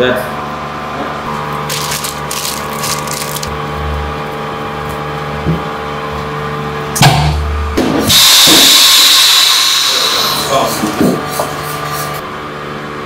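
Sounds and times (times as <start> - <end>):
machine hum: 0.4 - 13.0
vacuum pump hissing: 8.1 - 10.9.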